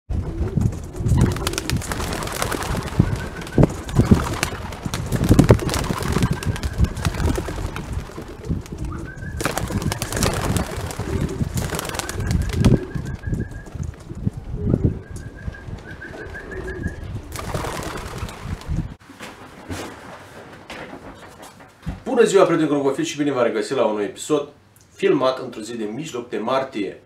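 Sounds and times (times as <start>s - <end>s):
wing claps and flapping: 0.2s - 14.5s, 15.1s - 21.7s
pigeons cooing: 0.2s - 18.1s.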